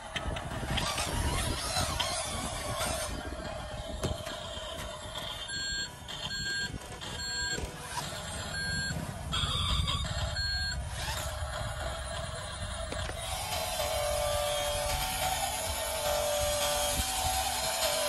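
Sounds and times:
low rumble: 0.4 - 16.6
reversing beeper: 5.4 - 13.0.

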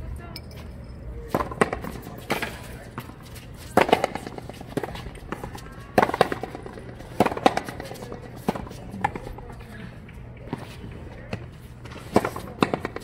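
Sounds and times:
ball struck by racquets: 1.3 - 9.4, 11.3 - 13.0.

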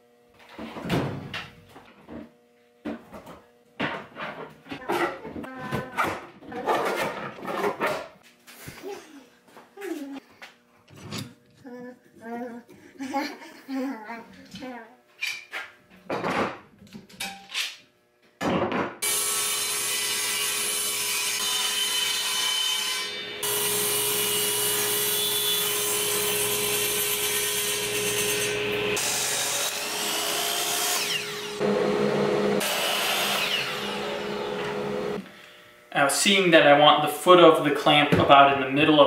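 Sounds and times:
power saw cutting plywood: 19.0 - 36.4.

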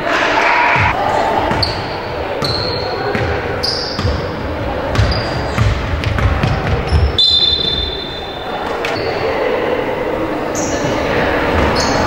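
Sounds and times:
sharp knock: 0.0 - 1.0
murmur of voices: 8.0 - 12.0.

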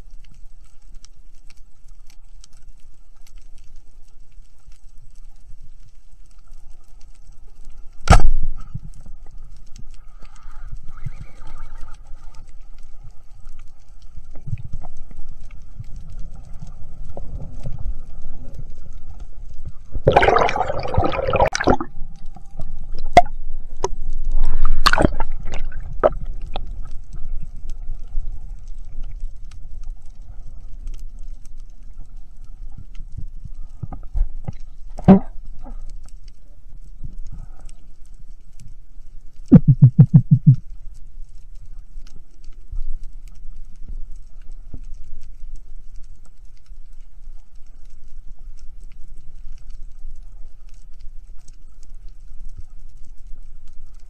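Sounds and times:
low rumble of water: 0.0 - 54.0
sharp clicks and crackles: 0.0 - 54.0
underwater bubbling rush: 14.5 - 28.6, 39.5 - 40.7.

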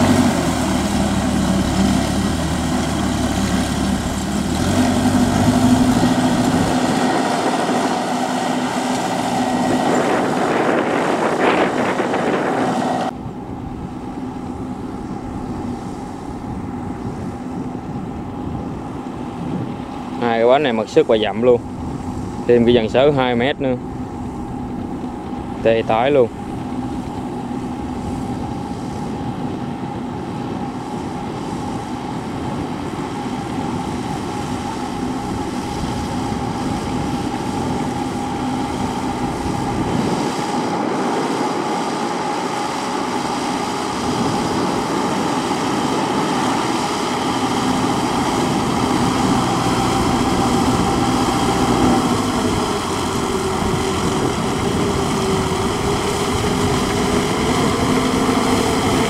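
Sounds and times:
diesel tiller engine running: 0.0 - 59.0.

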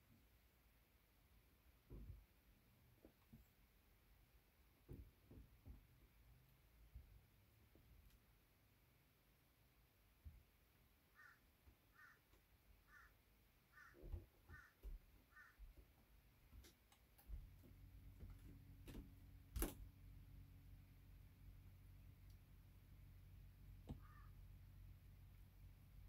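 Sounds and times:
faint bird calls: 11.1 - 15.8, 23.9 - 24.4.

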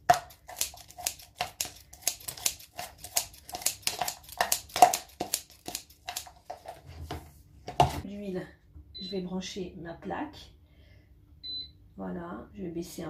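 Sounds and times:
scissors snipping onion: 0.0 - 6.2.

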